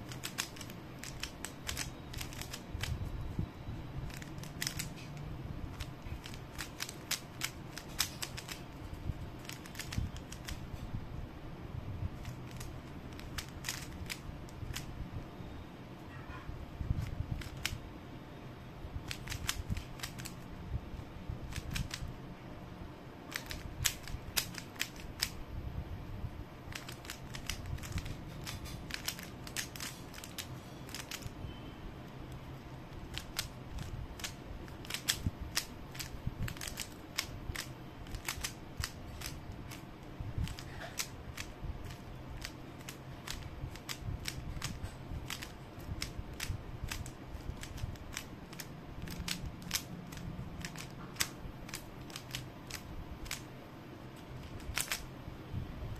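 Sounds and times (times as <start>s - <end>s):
puzzle cube clicking as turned: 0.1s - 3.0s, 4.1s - 10.6s, 12.2s - 14.9s, 17.0s - 17.8s, 19.1s - 20.4s, 21.5s - 22.0s, 23.3s - 25.4s, 26.7s - 31.3s, 33.1s - 39.8s, 40.4s - 53.4s, 54.4s - 55.1s.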